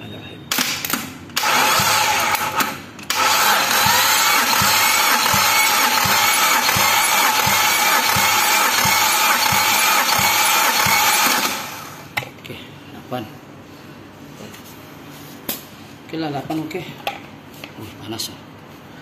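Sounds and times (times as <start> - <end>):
engine cranking with starter motor: 0.8 - 12.1.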